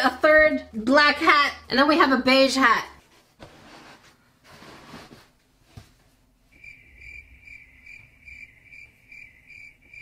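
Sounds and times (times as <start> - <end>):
cricket chirping: 6.5 - 10.0.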